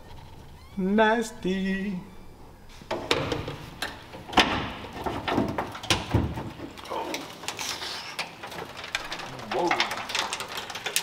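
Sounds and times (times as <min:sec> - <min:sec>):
hood creaking and scraping: 0:02.3 - 0:11.0
metal knocks and clunks: 0:02.9 - 0:11.0.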